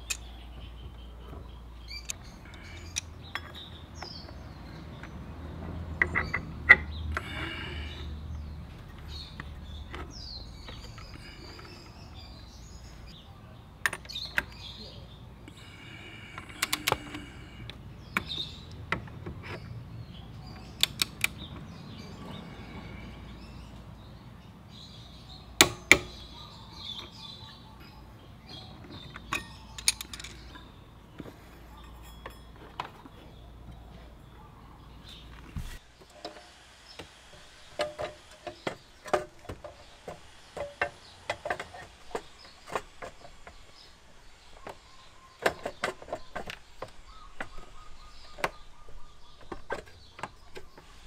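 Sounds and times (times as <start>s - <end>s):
birds chirping: 0.0s - 51.0s
metallic clicks of hand tools: 16.4s - 19.6s, 20.6s - 21.5s, 29.1s - 30.6s.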